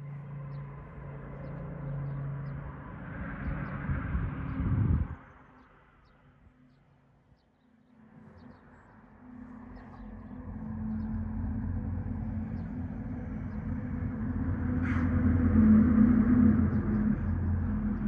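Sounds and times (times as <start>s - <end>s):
engine hum: 8.6s - 18.0s.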